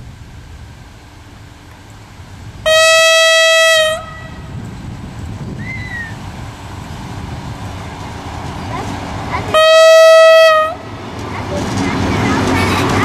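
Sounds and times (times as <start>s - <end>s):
locomotive engine rumble: 0.0s - 13.0s
locomotive horn blast: 2.6s - 4.7s, 9.5s - 11.0s.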